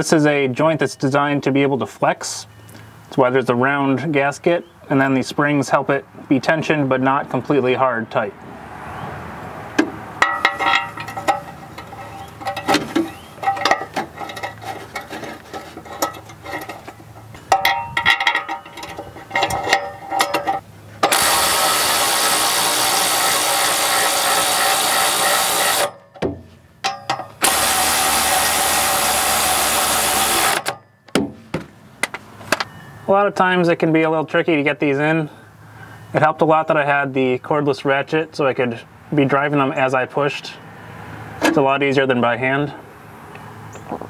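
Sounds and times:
metal clinks and knocks: 9.8 - 21.1, 25.7 - 27.4
cordless ratchet running: 18.0 - 26.0, 27.4 - 30.8.

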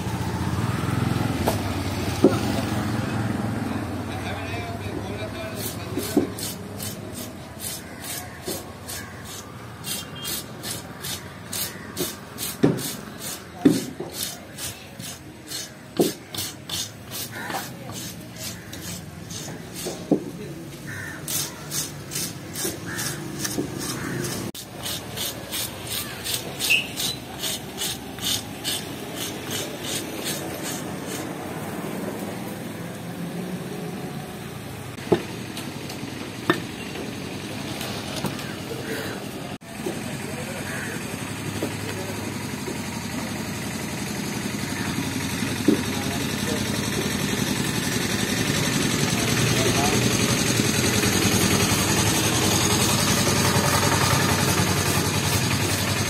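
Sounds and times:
fish scaler scraping scales: 5.5 - 20.1, 21.2 - 31.4.

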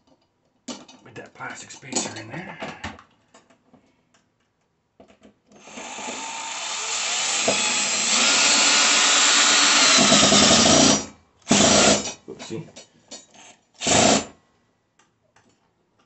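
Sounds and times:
cordless drill driving a bolt: 5.6 - 12.1.

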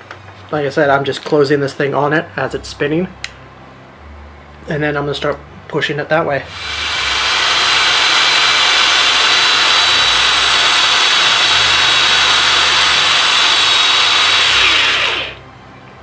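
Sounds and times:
drill winding down: 6.5 - 15.4
power drill whining: 6.5 - 15.4.

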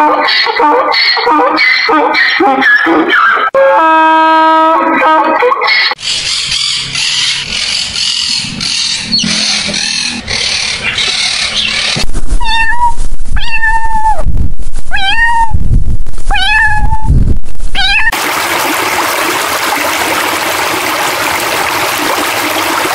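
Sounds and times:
macaw calling harshly: 6.0 - 12.0
cat meowing: 12.4 - 14.3, 14.9 - 15.6, 16.3 - 17.1, 17.7 - 18.1
water rushing: 18.0 - 22.9.

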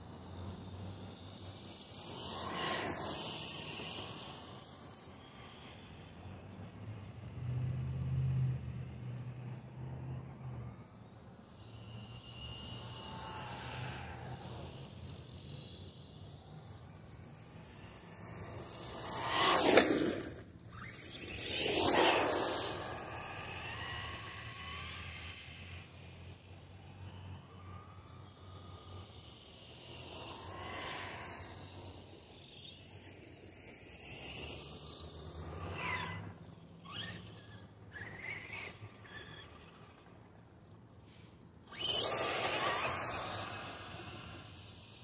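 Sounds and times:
rc car motor whine: 0.0 - 45.0
tyre noise on asphalt: 18.8 - 22.6
tyre hiss on asphalt: 41.0 - 41.4.

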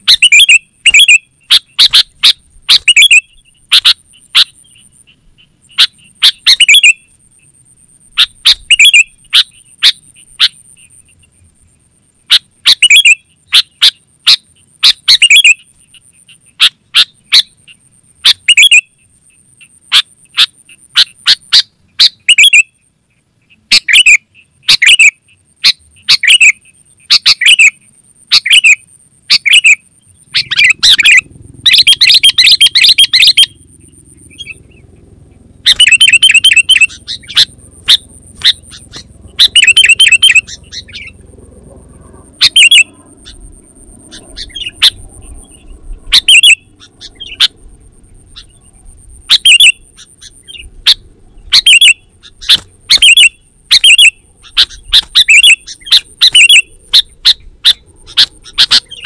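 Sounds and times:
bird chattering fast: 0.0 - 7.1, 8.2 - 11.3, 12.3 - 17.5, 23.7 - 34.9, 35.6 - 41.2, 42.4 - 48.7, 49.3 - 59.0.

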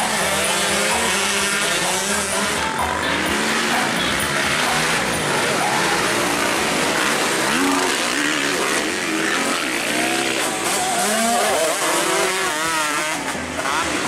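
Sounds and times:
motocross bikes revving: 0.0 - 14.0.

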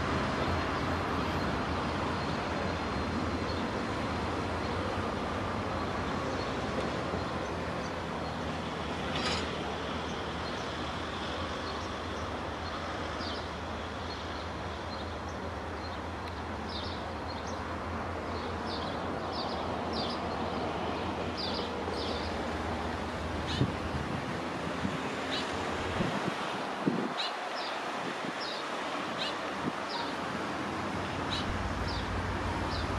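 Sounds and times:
diesel locomotive rumble: 31.0 - 32.9.

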